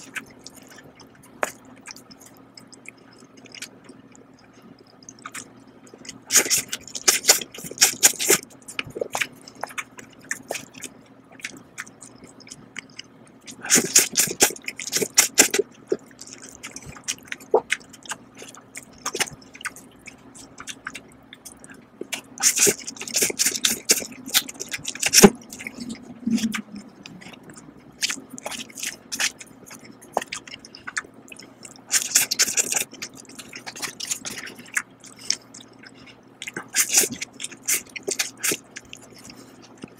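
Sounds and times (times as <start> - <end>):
chewing: 0.0 - 39.9
wet noodle slurps: 22.4 - 27.3, 36.7 - 38.6.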